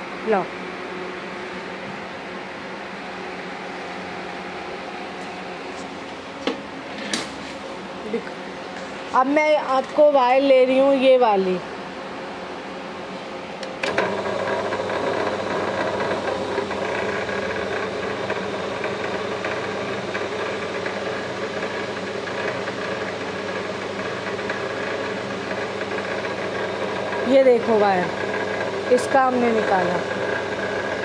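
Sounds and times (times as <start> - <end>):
wire stripping machine running: 13.8 - 31.0.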